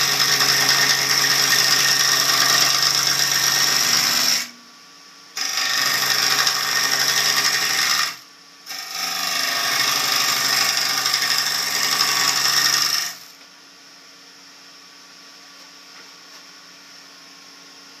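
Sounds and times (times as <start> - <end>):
gouge scraping wood on lathe: 5.4 - 13.2
lathe humming: 5.4 - 13.2.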